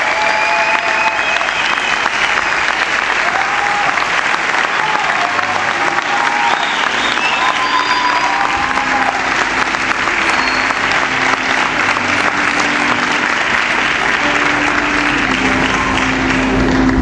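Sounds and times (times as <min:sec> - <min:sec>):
large crowd applauding: 0:00.0 - 0:17.0.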